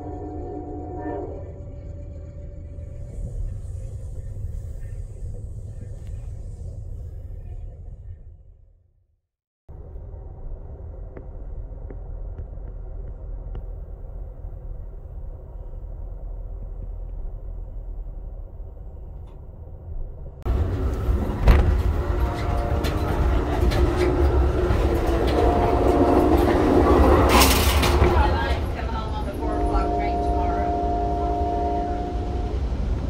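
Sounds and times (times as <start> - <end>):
passenger train rumbling: 0.0 - 8.5, 9.7 - 33.0
train wheels clicking and rattling: 20.5 - 29.4.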